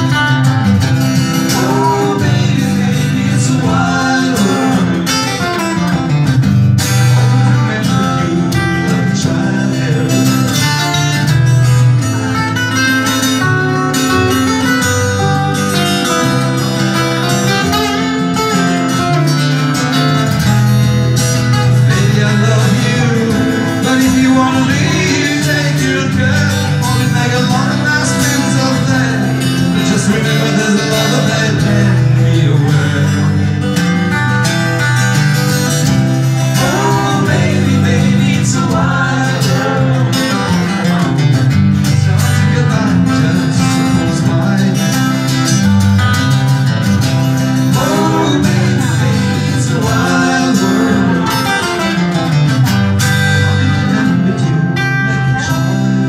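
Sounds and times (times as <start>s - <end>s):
acoustic guitar: 0.0s - 56.0s
person singing: 1.2s - 6.0s, 6.9s - 12.4s, 21.4s - 34.4s, 35.5s - 45.7s, 47.4s - 56.0s.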